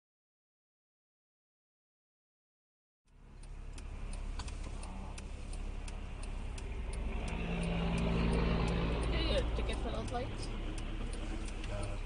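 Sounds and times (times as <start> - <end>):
car engine idling: 3.1 - 12.0
truck engine passing: 3.1 - 12.0
turn signal clicking: 3.1 - 12.0.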